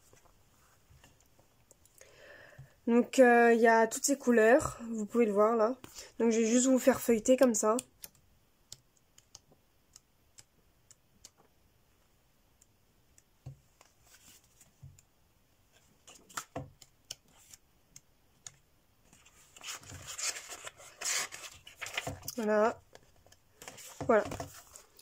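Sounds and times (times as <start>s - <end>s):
faint clicks and taps: 7.6s - 15.1s, 15.7s - 19.7s, 21.8s - 25.0s
paper pages rustling: 15.7s - 16.6s, 17.2s - 17.6s, 19.1s - 25.0s.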